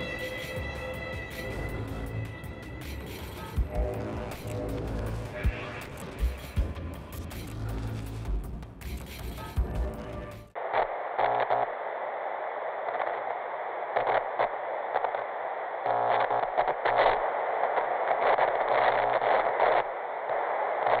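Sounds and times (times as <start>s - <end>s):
crackling glitches: 0.0s - 21.0s
television static hiss: 10.6s - 21.0s.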